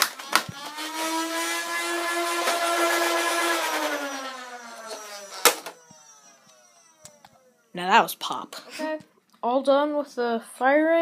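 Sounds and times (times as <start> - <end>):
toy blaster flywheel motors whining: 0.0 - 8.2.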